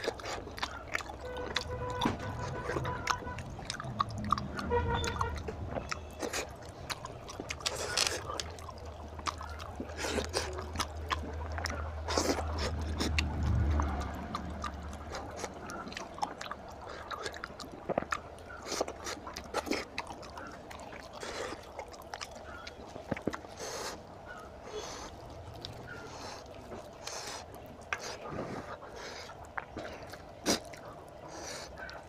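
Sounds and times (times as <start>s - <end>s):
chewing and lip smacks: 0.0s - 32.0s
fingers squelching through curry: 0.0s - 32.0s
meat tearing: 0.0s - 32.0s
low hum: 10.6s - 16.6s.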